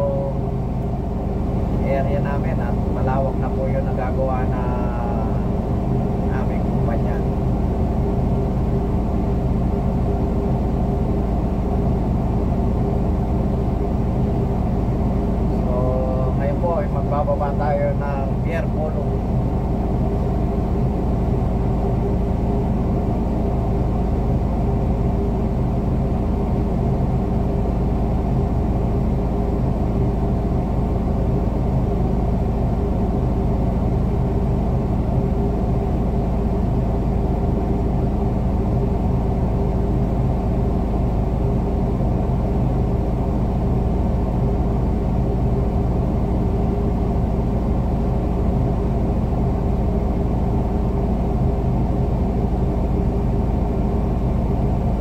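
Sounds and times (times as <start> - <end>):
crane engine rumbling: 0.0 - 55.0.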